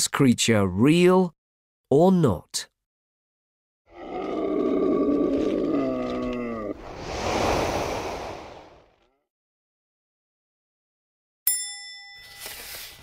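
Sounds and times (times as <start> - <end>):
dragon roar: 3.9 - 9.0
rushing whoosh: 6.8 - 9.0.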